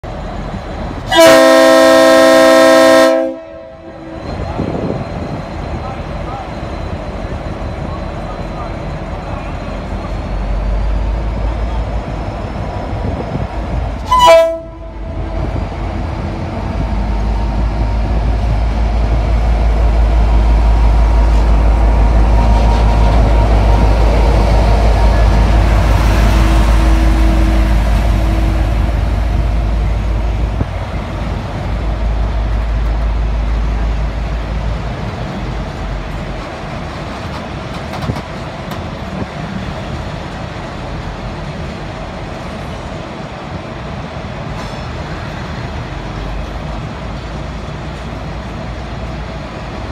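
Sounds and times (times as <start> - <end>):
diesel locomotive engine rumble: 0.0 - 49.9
locomotive horn toot: 1.1 - 4.0, 14.0 - 15.4.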